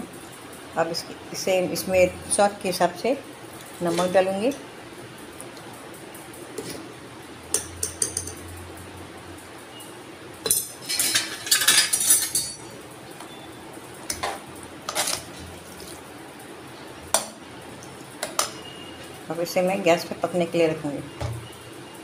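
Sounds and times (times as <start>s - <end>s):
spoon stirring and scraping: 3.8s - 4.6s, 6.5s - 6.9s, 14.1s - 16.0s
metal spoon clinking in pot: 7.5s - 8.5s, 10.4s - 12.7s.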